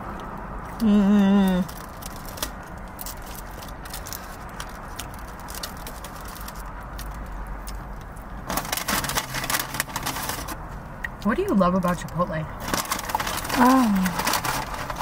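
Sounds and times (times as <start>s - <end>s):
crunching and rustling: 1.4s - 10.8s, 12.6s - 15.0s.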